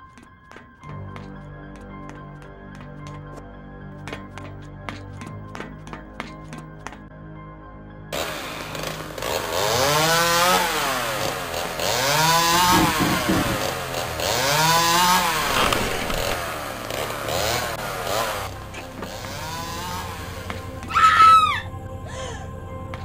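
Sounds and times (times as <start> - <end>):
chainsaw revving: 8.2 - 20.6.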